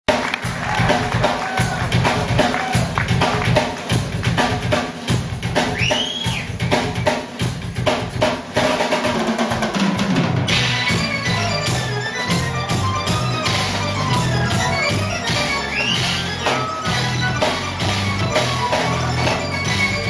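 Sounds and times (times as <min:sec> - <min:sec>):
live rock band playing: 0:00.1 - 0:20.0
keyboard notes: 0:10.4 - 0:20.0
whistle-like glide: 0:15.6 - 0:16.2.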